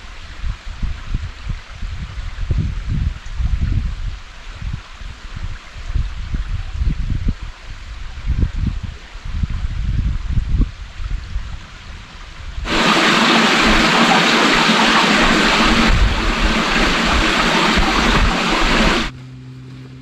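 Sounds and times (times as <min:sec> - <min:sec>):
microphone rumbling: 0:12.7 - 0:19.1
stream water rushing: 0:12.7 - 0:19.1.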